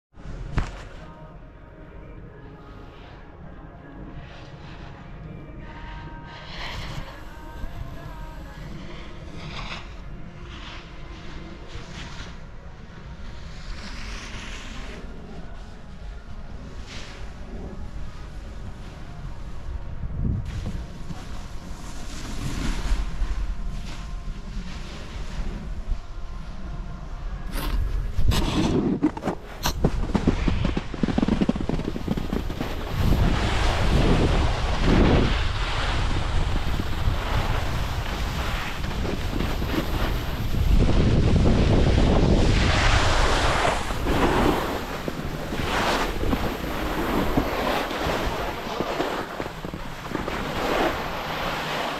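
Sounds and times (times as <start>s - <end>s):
skis scraping on snow: 13.2s - 15.3s, 20.4s - 25.7s, 27.6s - 51.9s
wind rushing over microphone: 17.3s - 51.9s.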